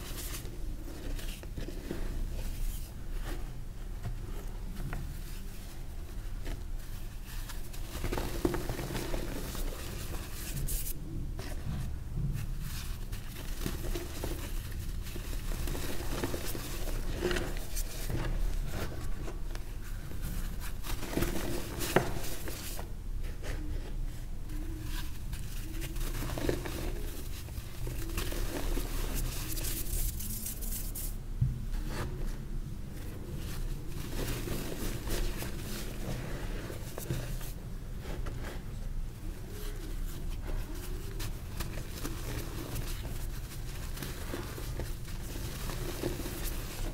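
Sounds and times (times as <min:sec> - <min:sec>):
chalk crunching and crumbling: 0:12.7 - 0:31.2.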